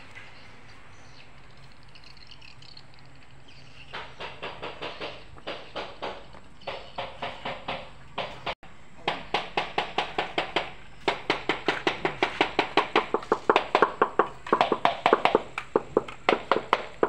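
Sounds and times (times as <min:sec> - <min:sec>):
hand tool tapping ceramic tiles: 0:04.0 - 0:17.0.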